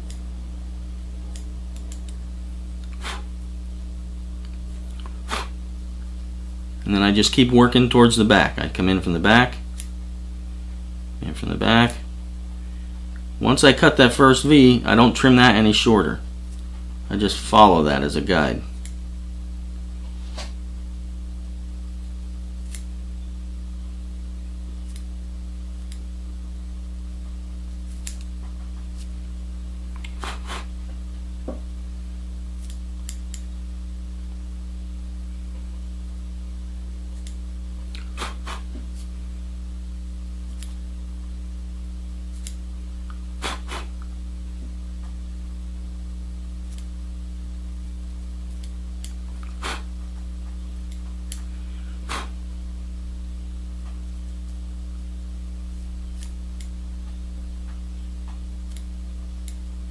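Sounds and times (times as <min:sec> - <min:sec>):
steady electrical hum: 0:00.0 - 0:59.9
scissor snips: 0:22.6 - 0:22.9, 0:24.9 - 0:25.1, 0:27.9 - 0:28.3, 0:32.6 - 0:33.4, 0:37.2 - 0:39.1, 0:40.5 - 0:40.8, 0:42.3 - 0:42.6, 0:43.4 - 0:44.0, 0:46.7 - 0:46.9, 0:56.2 - 0:56.7, 0:58.6 - 0:59.6.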